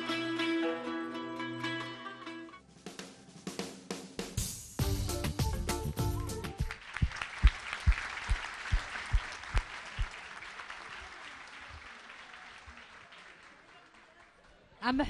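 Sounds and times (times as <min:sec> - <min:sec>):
drum-kit jingle: 0:02.9 - 0:06.6
audience applauding: 0:05.9 - 0:14.7.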